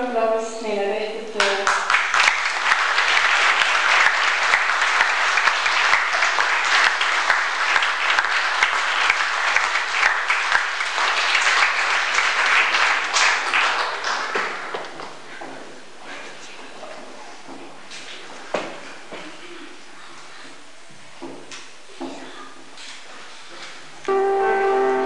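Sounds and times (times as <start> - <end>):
audience applauding: 1.4 - 15.2.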